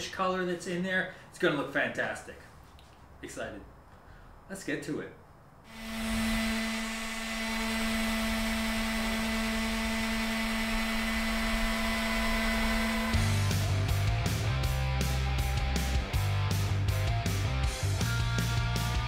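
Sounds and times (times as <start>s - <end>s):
orbital sander motor whine: 5.7s - 16.0s
music: 13.0s - 19.0s.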